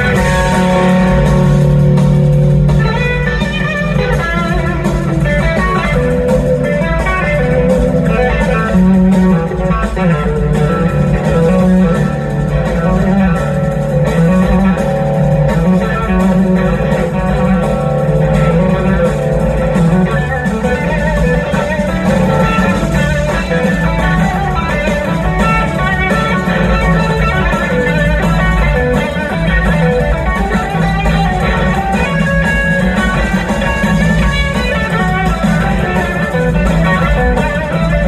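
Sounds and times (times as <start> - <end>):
steady low bass: 0.0 - 4.1
electric guitar lead lines: 0.0 - 38.0.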